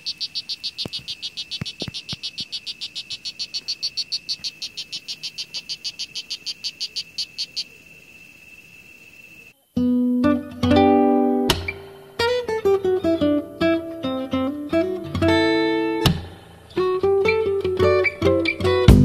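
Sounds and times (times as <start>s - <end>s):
frog calling in high chirps: 0.0s - 7.9s.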